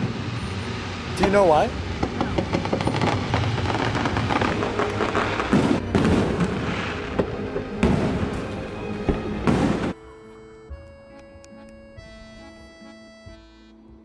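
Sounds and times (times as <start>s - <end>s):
fireworks crackling: 0.0s - 10.0s
firework booms: 1.2s - 10.0s.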